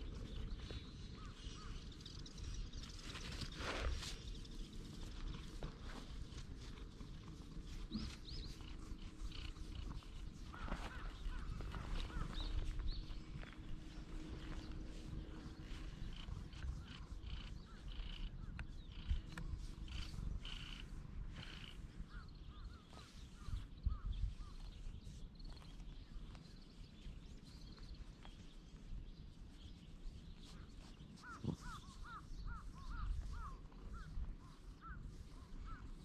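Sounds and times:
wind rumble: 0:00.0 - 0:26.4
birds calling short notes: 0:30.5 - 0:36.0.

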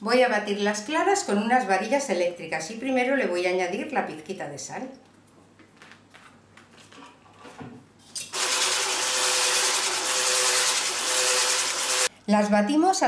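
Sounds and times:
electric whisk whirring: 0:08.3 - 0:12.1.

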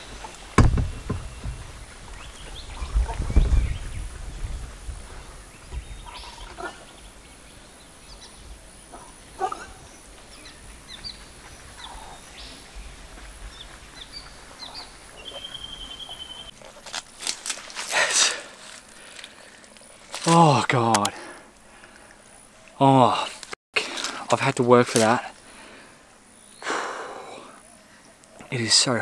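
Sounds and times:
faint wind: 0:00.0 - 0:29.0
animal calls and chirps: 0:05.5 - 0:16.5.

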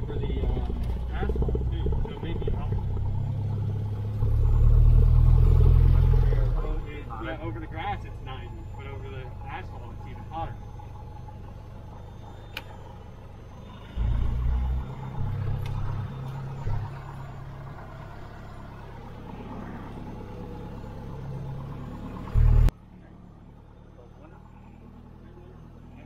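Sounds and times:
heavy low rumbles: 0:00.0 - 0:22.7
light aircraft engine and propeller: 0:00.0 - 0:26.0.

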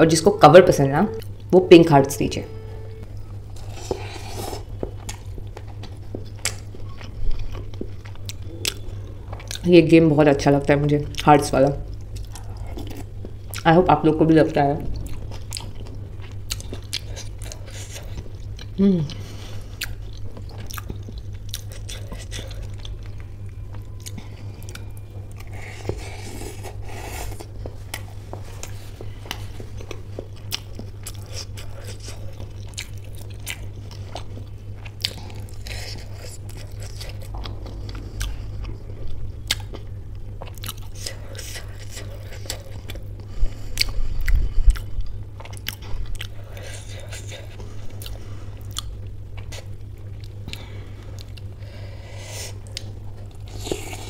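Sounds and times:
steady low hum: 0:00.0 - 0:54.0
biting and chewing with mouth clicks: 0:14.9 - 0:51.6.

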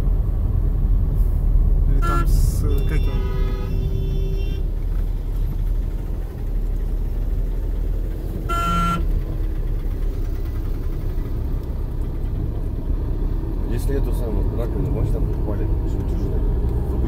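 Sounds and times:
traffic rumble from inside vehicle: 0:00.0 - 0:17.0
vehicle horn honk: 0:01.9 - 0:04.7, 0:08.4 - 0:09.1.

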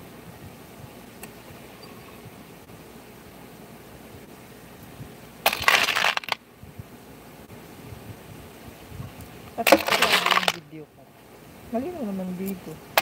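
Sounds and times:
metal parts clattering into bin: 0:05.5 - 0:06.4, 0:09.8 - 0:10.6.

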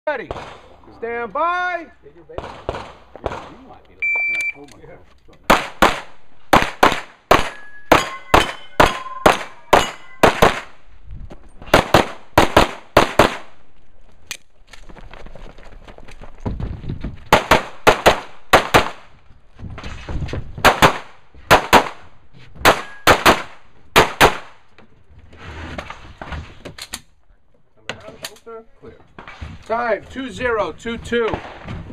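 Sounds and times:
pistol shots: 0:02.4 - 0:03.6, 0:05.5 - 0:10.8, 0:11.7 - 0:13.5, 0:17.3 - 0:19.0, 0:20.6 - 0:22.0, 0:22.6 - 0:24.5
steel targets ringing: 0:07.5 - 0:10.4.

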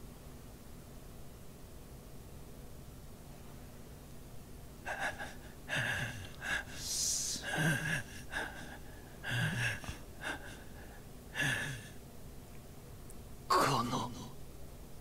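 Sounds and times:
man gasping and grunting in pain: 0:04.9 - 0:12.0
sharp hissing breath: 0:04.9 - 0:12.0.

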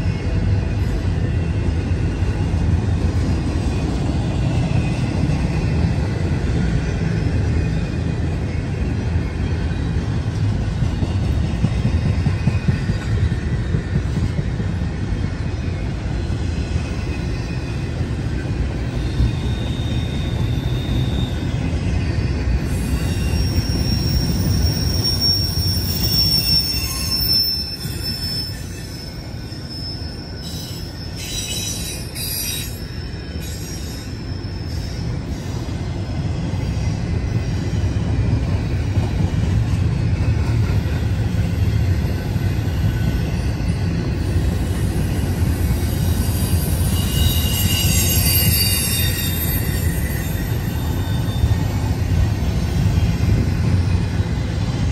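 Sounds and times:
train wheels rumbling on rail: 0:00.0 - 0:54.9
high-pitched wheel squeal: 0:18.9 - 0:35.6, 0:41.2 - 0:51.9.

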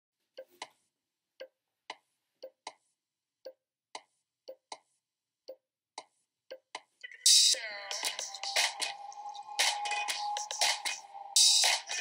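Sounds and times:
wood-block-like clicks: 0:00.4 - 0:00.8, 0:01.4 - 0:02.9, 0:03.5 - 0:04.9, 0:05.5 - 0:07.1.

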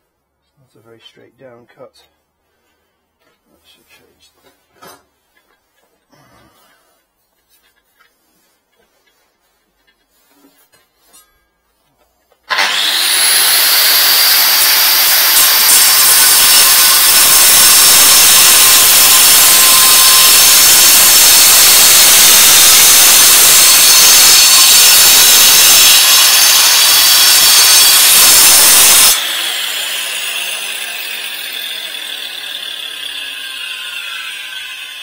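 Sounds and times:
grinder disc winding down: 0:12.5 - 0:29.9
angle grinder cutting concrete: 0:12.5 - 0:35.0.

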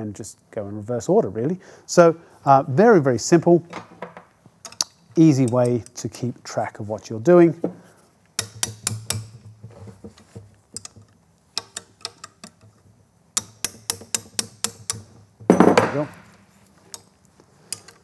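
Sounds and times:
hammer tapping metal spanner: 0:04.6 - 0:06.0, 0:08.4 - 0:12.8, 0:13.4 - 0:18.0.

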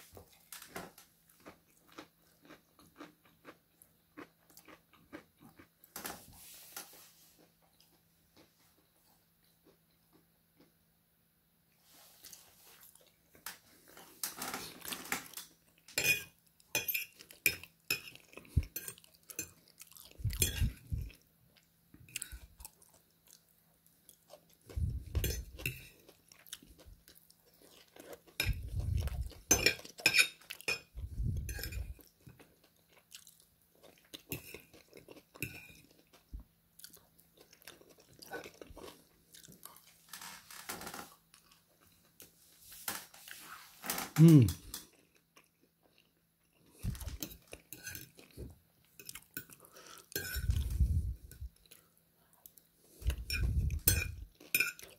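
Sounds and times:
chewing: 0:00.1 - 0:05.8, 0:17.0 - 0:40.0, 0:44.6 - 0:54.9.

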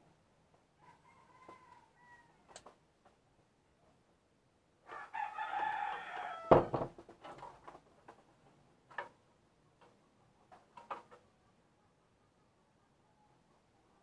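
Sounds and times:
rooster crowing: 0:00.8 - 0:02.4, 0:04.9 - 0:06.8
loud thump: 0:06.5 - 0:07.0.

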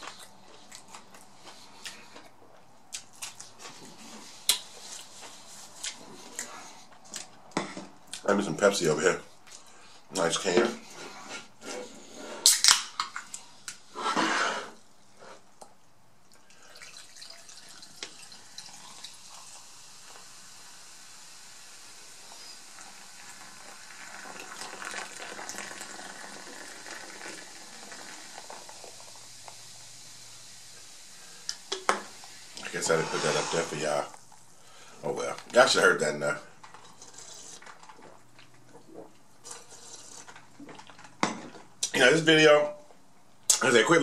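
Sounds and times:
soda can tab snapping open: 0:12.4 - 0:13.3
soda pouring into a cup: 0:16.4 - 0:34.3
carbonated soda fizzing: 0:16.4 - 0:37.6.

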